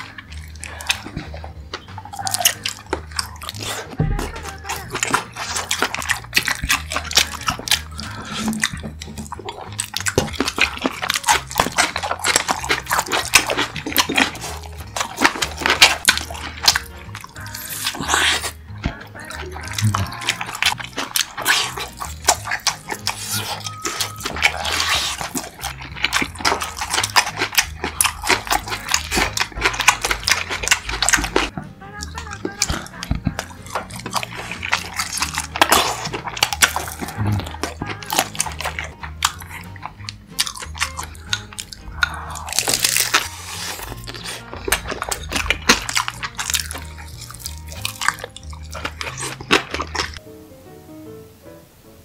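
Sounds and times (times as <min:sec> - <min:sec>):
biting and chewing food: 0:00.0 - 0:50.2
background music: 0:00.0 - 0:52.0
wet mouth clicks and smacks: 0:19.6 - 0:50.2.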